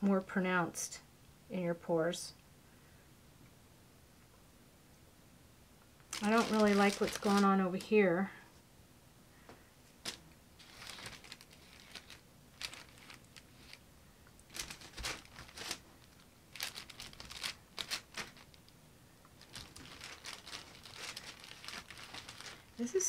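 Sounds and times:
plastic crinkling and rustling: 6.0s - 8.0s, 9.9s - 23.0s.

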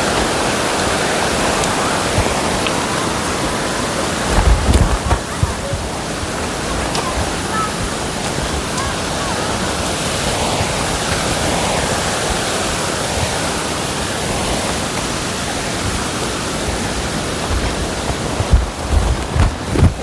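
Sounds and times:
rushing stream water: 0.0s - 20.0s
low thumps: 4.2s - 6.0s.

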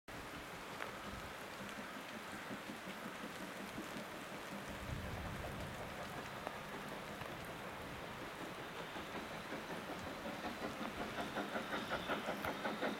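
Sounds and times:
rain falling: 0.1s - 11.4s.

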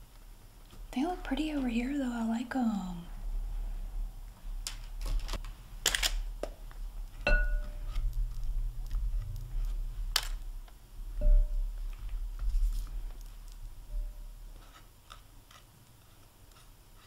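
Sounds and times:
fork tapping glass bowl: 7.3s - 7.8s
glass bowl ringing: 7.3s - 7.8s, 11.2s - 11.8s.

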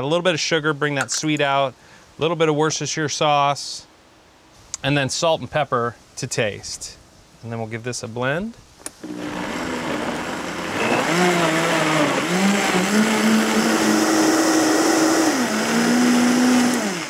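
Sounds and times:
blender motor running: 9.0s - 17.0s.

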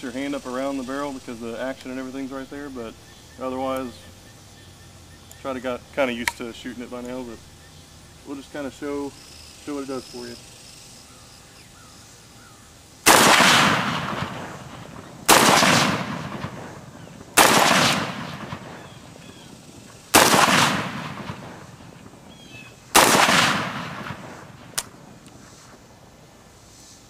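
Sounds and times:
rifle shots with echo: 13.1s - 25.1s.

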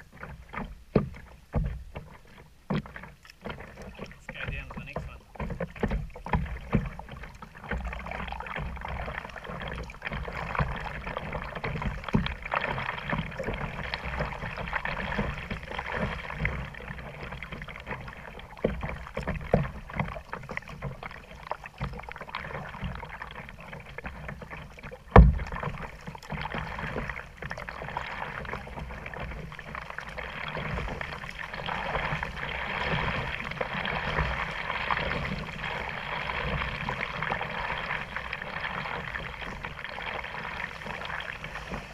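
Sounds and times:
paddle splashes: 0.0s - 41.9s
water sloshing against hull: 0.0s - 41.9s
knocks on kayak hull: 0.2s - 9.0s, 25.0s - 27.7s.

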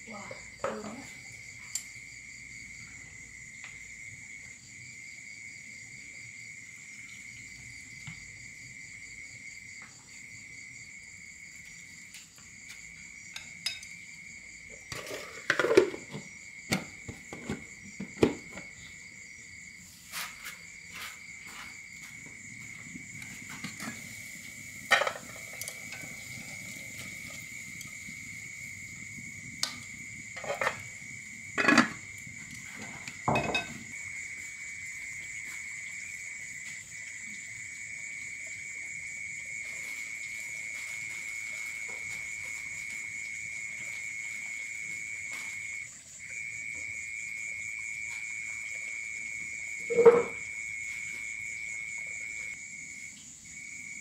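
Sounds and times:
insects droning: 0.0s - 54.0s
knocks and clinks: 33.3s - 33.8s.

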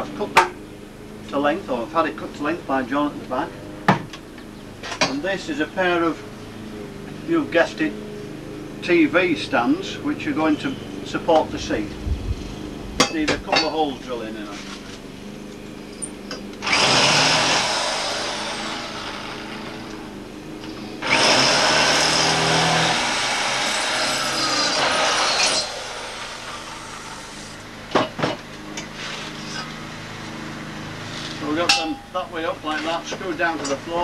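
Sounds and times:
electric drill boring: 16.0s - 27.8s.

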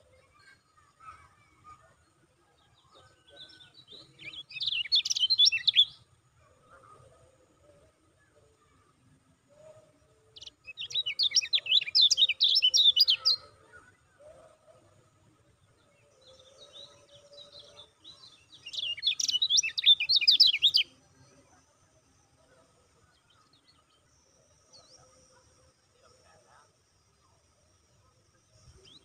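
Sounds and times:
small bird chattering song: 3.2s - 6.0s, 10.4s - 14.3s, 16.2s - 21.0s.

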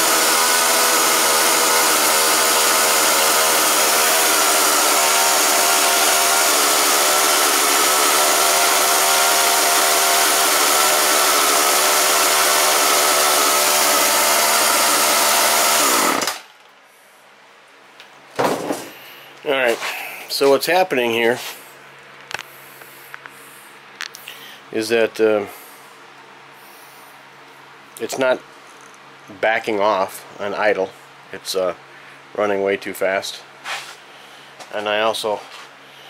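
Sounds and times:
chainsaw engine running fast: 0.0s - 16.4s.

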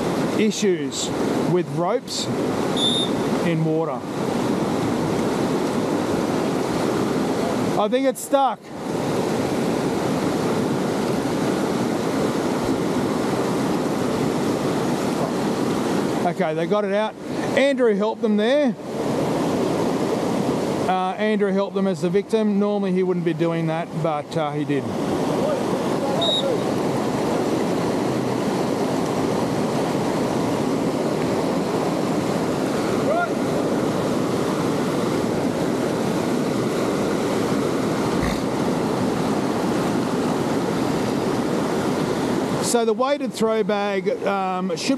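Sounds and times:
river rushing over rocks: 0.0s - 22.3s, 23.3s - 44.9s.

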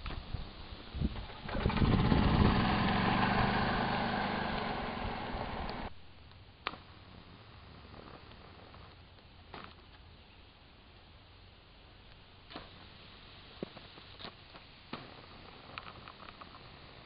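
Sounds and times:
small engine running: 1.3s - 5.9s.

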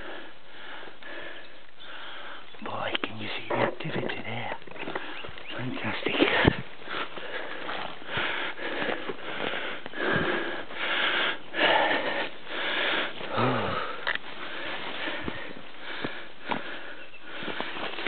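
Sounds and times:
person breathing hard: 0.0s - 2.5s, 6.3s - 18.0s.

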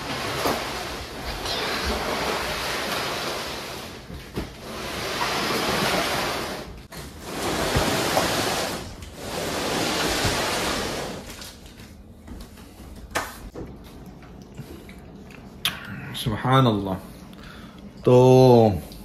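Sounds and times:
cardboard box scraping across floor: 0.0s - 11.4s.

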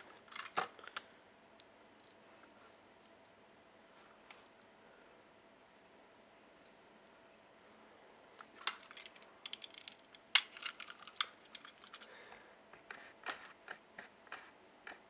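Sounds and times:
toy parts clicking and tapping: 8.5s - 12.1s.

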